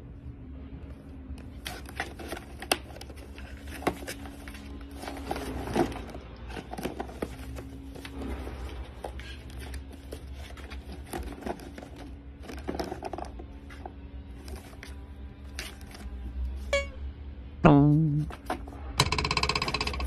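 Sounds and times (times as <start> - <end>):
cardboard box scraping and rustling: 1.6 - 15.0.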